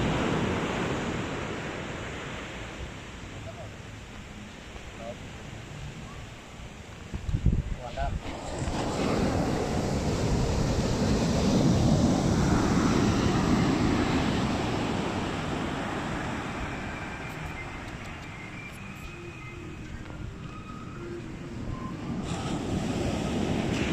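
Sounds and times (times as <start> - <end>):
surf rumbling: 0.0 - 19.9, 20.8 - 23.9
wind buffeting microphone: 7.0 - 18.2.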